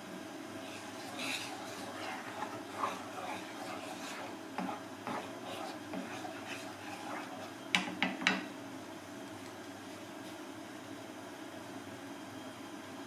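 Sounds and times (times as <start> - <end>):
spatula scraping metal pan: 0.6 - 7.6.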